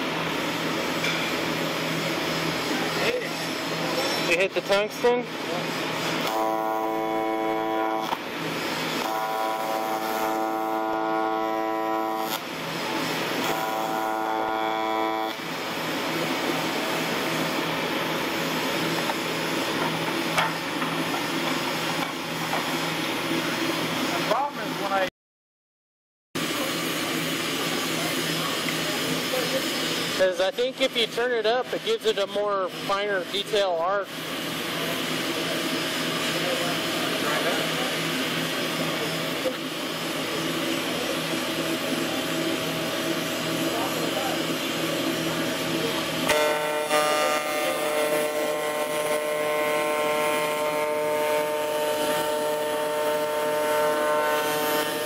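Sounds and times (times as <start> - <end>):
shop machinery running: 0.0 - 25.1, 26.4 - 55.0
welding arc buzzing: 0.0 - 25.1, 26.4 - 55.0
low buzz: 6.2 - 8.4, 9.0 - 19.8, 46.2 - 55.0.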